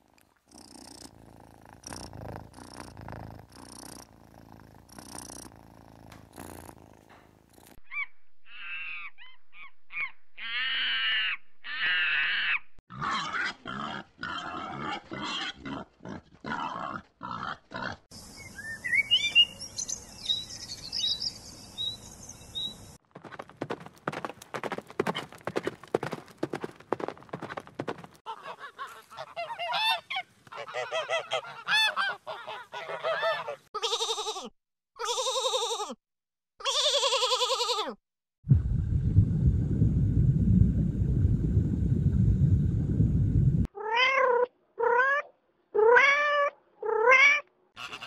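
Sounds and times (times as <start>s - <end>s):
monkey calling high and wavering: 7.9s - 12.6s.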